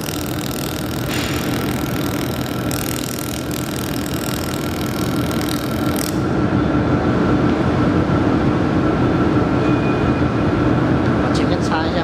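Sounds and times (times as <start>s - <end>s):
laser welder hissing: 0.0s - 6.2s
steady machine drone: 0.0s - 12.0s.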